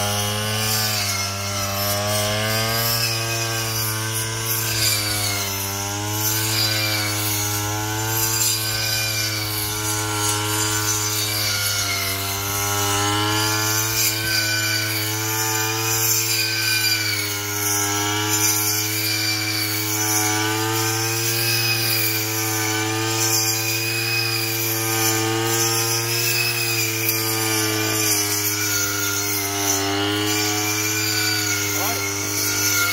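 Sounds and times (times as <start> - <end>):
brush cutter engine cutting grass: 0.0 - 32.9.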